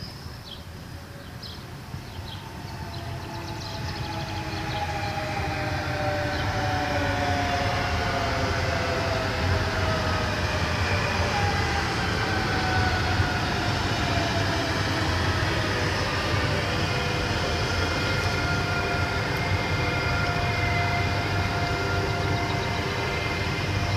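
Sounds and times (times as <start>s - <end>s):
train rail rumble: 0.0s - 23.9s
electric traction motor whine: 2.3s - 23.9s.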